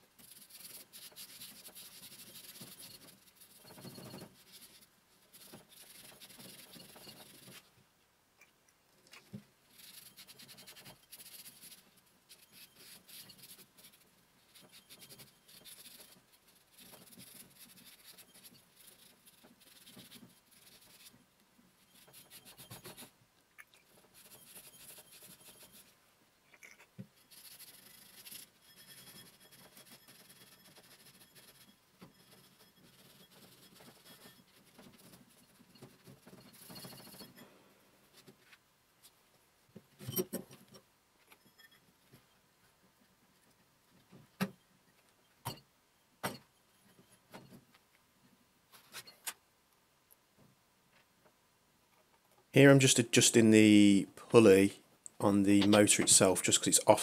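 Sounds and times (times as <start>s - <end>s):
cloth rag rubbing metal: 0.2s - 7.7s, 9.7s - 21.2s, 23.9s - 25.9s, 27.2s - 37.4s.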